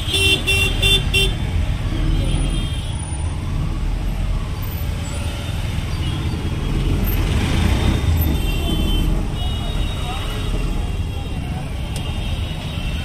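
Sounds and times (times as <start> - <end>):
auto-rickshaw engine rumble: 0.0 - 13.0
road noise: 0.0 - 13.0.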